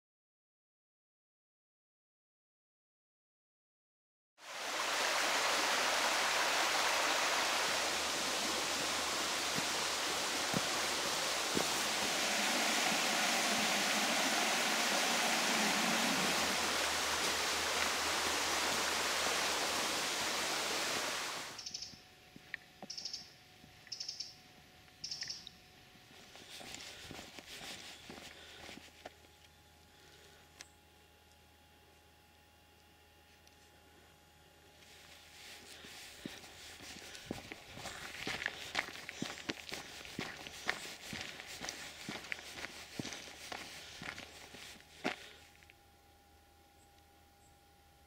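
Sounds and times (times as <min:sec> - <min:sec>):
river rushing over stones: 0:04.4 - 0:21.6.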